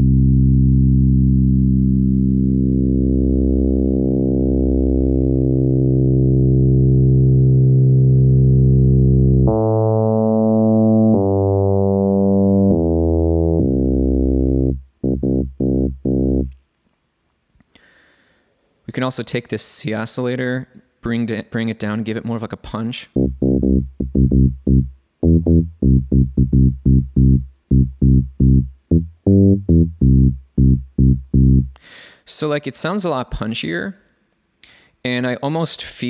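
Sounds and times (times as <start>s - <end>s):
synthesizer bass notes: 0.0s - 16.6s, 23.2s - 31.8s.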